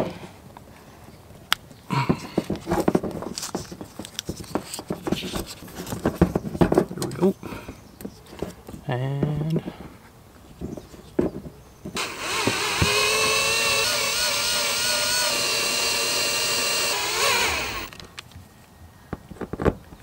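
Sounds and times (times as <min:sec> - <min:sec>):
cordless drill driving screw: 0:12.0 - 0:18.0.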